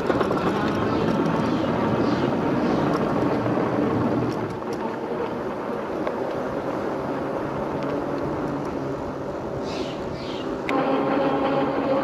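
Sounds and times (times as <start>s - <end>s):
tyres rolling over wooden deck: 0.0s - 8.9s.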